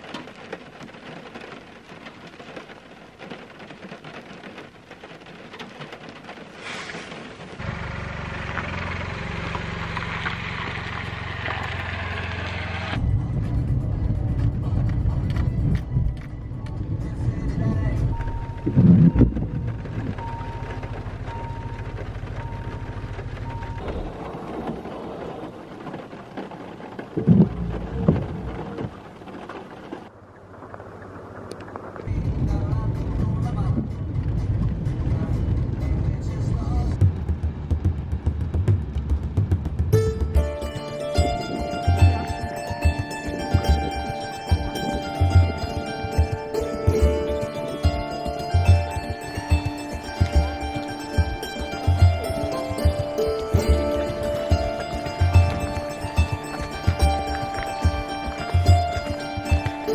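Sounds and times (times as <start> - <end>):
rain ticking on a car roof: 0.0 - 59.9
steady rain: 0.0 - 59.9
low steady rumble: 7.6 - 25.8, 27.1 - 59.9
level crossing warning tones: 18.0 - 24.3.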